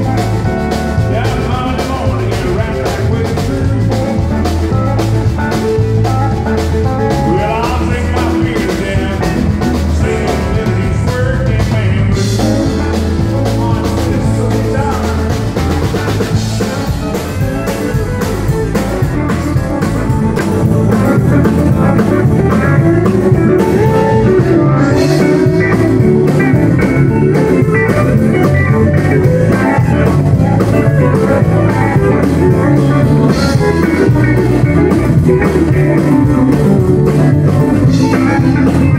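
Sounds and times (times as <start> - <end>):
bass: 0.0 - 38.9
drums: 0.0 - 38.9
electric guitar lead: 0.0 - 38.9
pedal steel guitar lead: 0.0 - 38.9.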